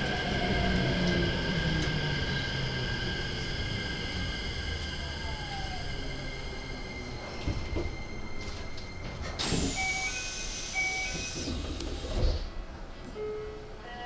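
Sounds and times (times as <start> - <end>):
train electrical hum: 0.0 - 14.0
air hiss: 9.4 - 12.5.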